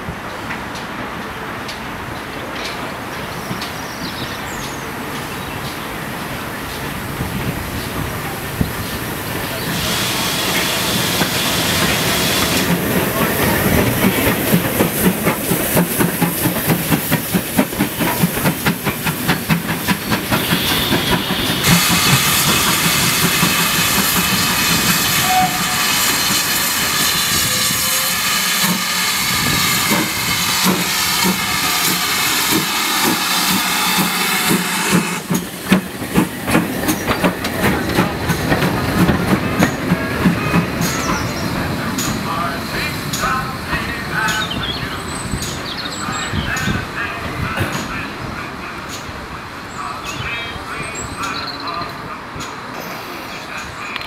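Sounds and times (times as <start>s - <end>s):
rhythmic train clatter: 4.9s - 54.0s
loud steam hiss: 6.0s - 51.6s
steam locomotive exhaust beats: 7.2s - 45.6s.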